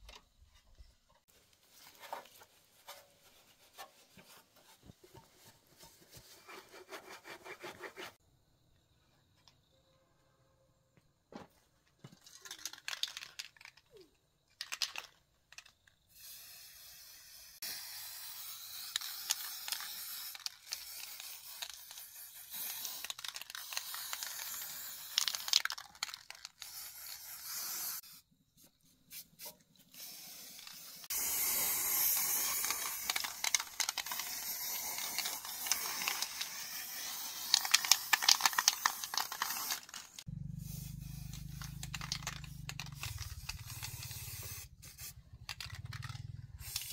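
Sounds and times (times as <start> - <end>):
aerosol spray can hissing: 16.1 - 28.2, 29.1 - 46.9.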